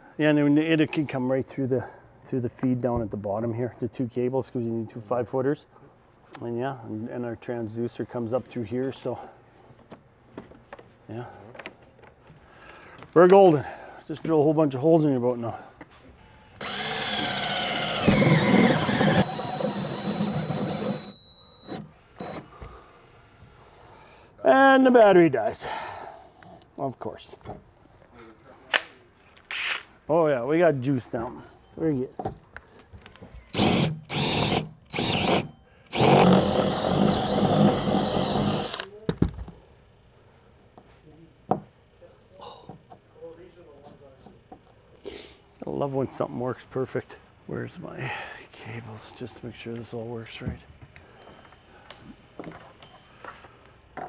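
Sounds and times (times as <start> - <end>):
cordless drill boring: 16.6 - 23.5, 33.5 - 38.9.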